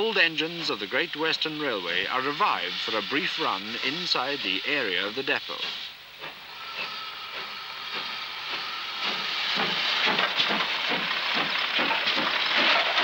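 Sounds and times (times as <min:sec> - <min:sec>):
steam locomotive hissing: 0:00.0 - 0:13.0
locomotive exhaust beats: 0:05.4 - 0:13.0.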